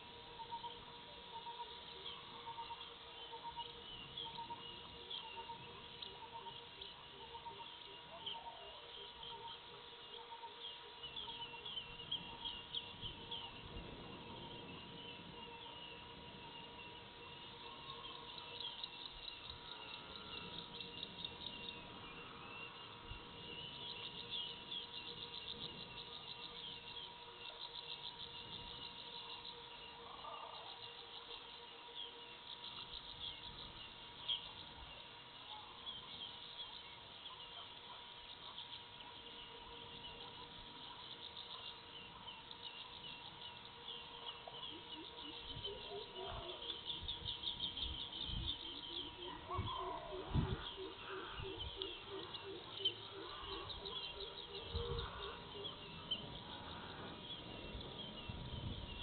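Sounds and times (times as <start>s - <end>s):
faint steady hum: 0.0s - 59.0s
insects and birds chirping: 0.0s - 59.0s
lower bird calls: 0.0s - 59.0s.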